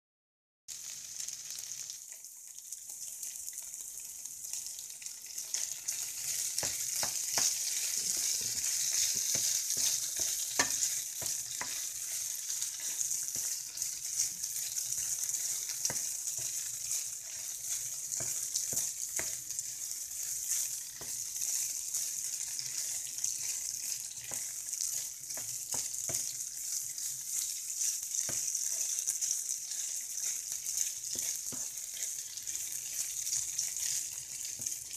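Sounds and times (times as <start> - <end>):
chicken sizzling in a pan: 0.7 - 34.9
spatula clicking against pan: 6.5 - 11.8.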